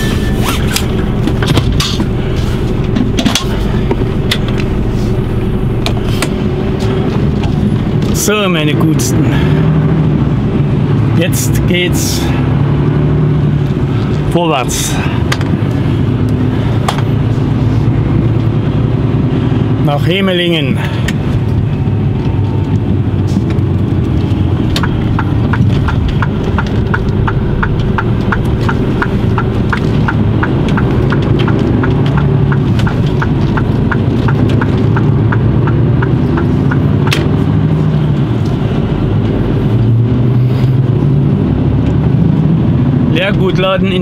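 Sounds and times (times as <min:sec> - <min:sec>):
truck diesel engine: 0:00.0 - 0:44.0
turn signal ticking: 0:21.0 - 0:44.0.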